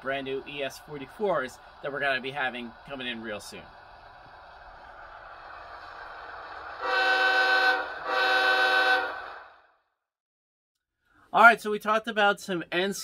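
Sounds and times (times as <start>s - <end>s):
model diesel engine sound: 0.0s - 9.7s
locomotive horn blasts: 6.8s - 9.4s.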